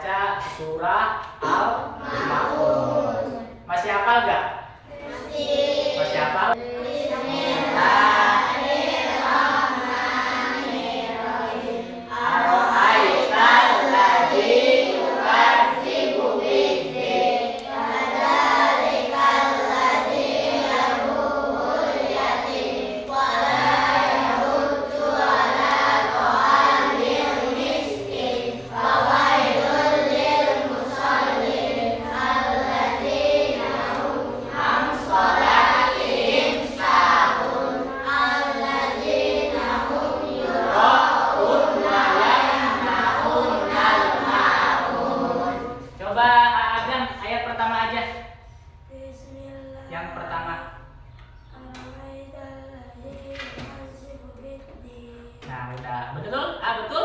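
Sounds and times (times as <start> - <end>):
children singing together: 1.5 - 3.6, 4.9 - 46.0.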